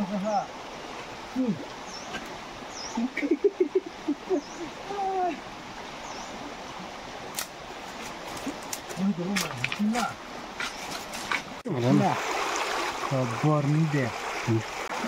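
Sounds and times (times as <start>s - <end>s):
stream running: 0.0s - 15.0s.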